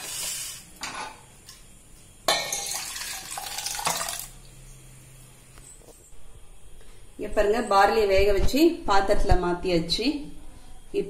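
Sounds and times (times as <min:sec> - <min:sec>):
water pouring into metal bowl: 0:02.4 - 0:04.4.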